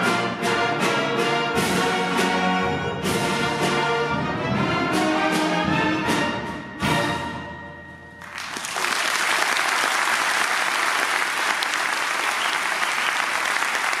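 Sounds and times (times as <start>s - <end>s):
audience applause: 8.2s - 14.0s.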